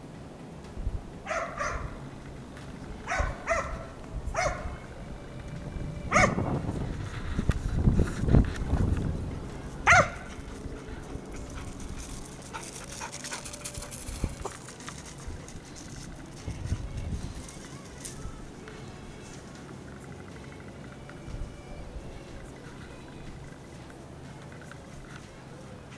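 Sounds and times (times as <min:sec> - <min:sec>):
hound barking: 0:01.2 - 0:02.0, 0:03.0 - 0:04.9, 0:06.1 - 0:06.5, 0:09.8 - 0:14.9.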